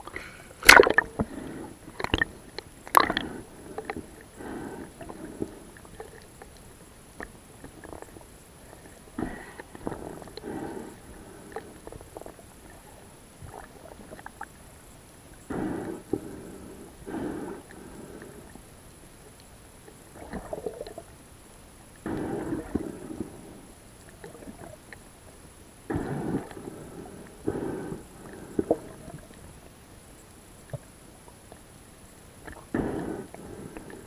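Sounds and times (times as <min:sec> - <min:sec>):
breathing through a snorkel: 0:00.1 - 0:02.2, 0:03.0 - 0:05.8, 0:09.2 - 0:11.8, 0:15.5 - 0:18.6, 0:22.0 - 0:23.7, 0:25.9 - 0:29.2, 0:32.7 - 0:34.0.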